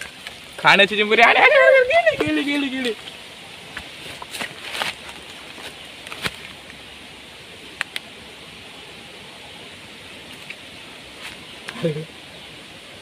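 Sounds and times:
faint steady hiss: 0.0s - 13.0s
footsteps through undergrowth: 3.7s - 6.6s.

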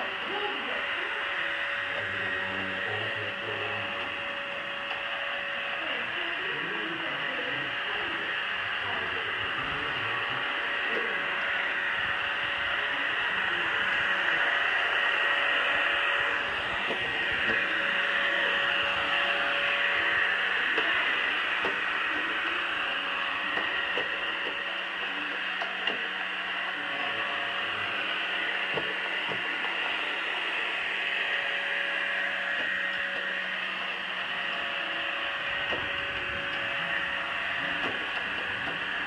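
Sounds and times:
robot vacuum whirring: 0.0s - 39.0s
steady hum: 0.0s - 39.0s.

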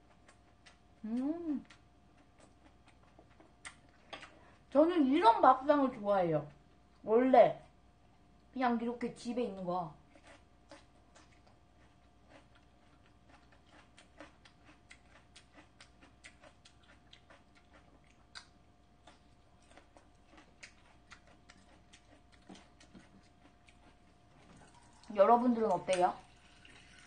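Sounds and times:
crunching of bell pepper chewed: 0.0s - 4.7s, 9.9s - 26.1s.

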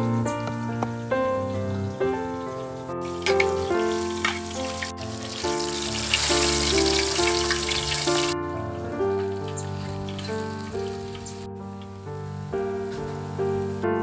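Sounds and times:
instrumental background music: 0.0s - 14.0s
hot oil sizzling: 1.4s - 8.4s, 9.2s - 11.5s.

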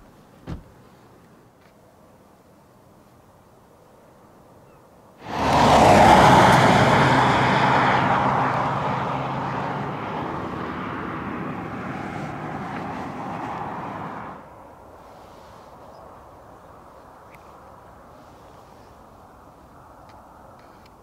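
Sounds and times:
vehicle passing by: 5.2s - 14.5s.

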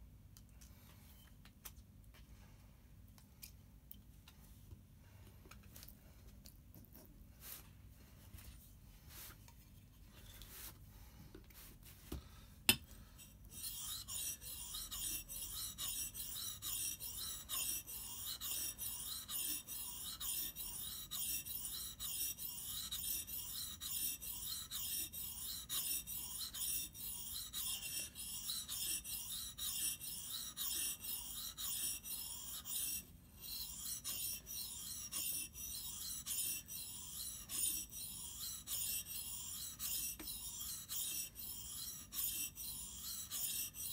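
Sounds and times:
blade rasping on whetstone: 13.2s - 43.9s.

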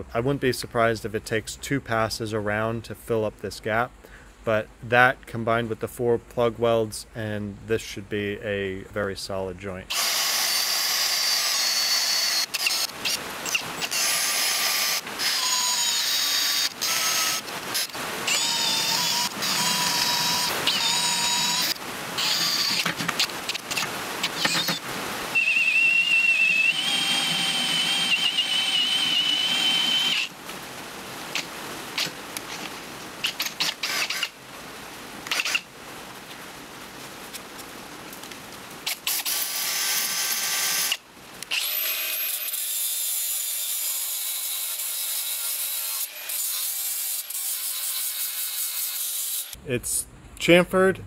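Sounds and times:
power drill squealing through metal: 9.9s - 22.9s, 23.5s - 30.3s
angle grinder on metal: 9.9s - 24.8s, 25.4s - 30.3s, 33.2s - 34.4s, 38.9s - 49.6s.

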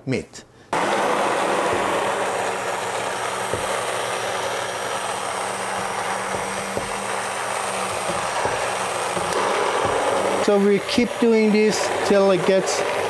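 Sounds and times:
hand blender motor humming: 0.8s - 13.0s
soft knocks: 3.5s - 3.9s.

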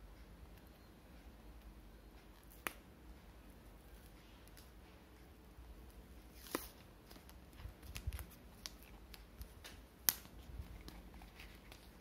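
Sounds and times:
crisp paper crackles and clicks: 6.3s - 12.0s.

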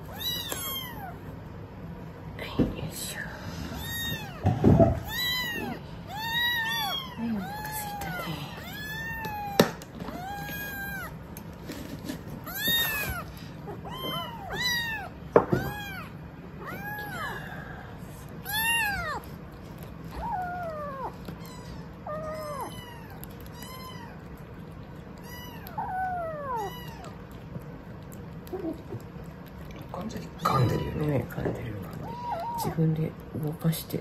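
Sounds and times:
kittens meowing: 0.0s - 1.4s, 3.6s - 11.3s, 12.4s - 27.3s, 31.8s - 32.8s.

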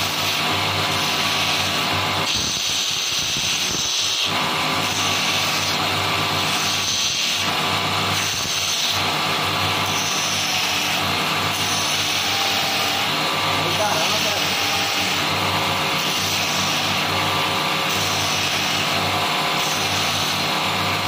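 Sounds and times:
belt grinder motor hum: 0.0s - 21.0s.

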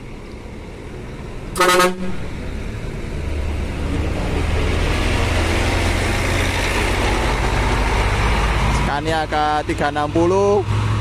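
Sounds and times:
diesel bus engine pulling away: 0.0s - 11.0s
bus horn blast: 1.6s - 2.3s.

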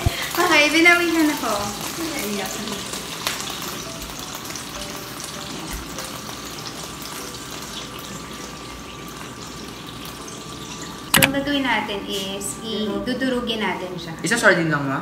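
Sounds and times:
fish sizzling in hot oil: 0.0s - 12.9s.

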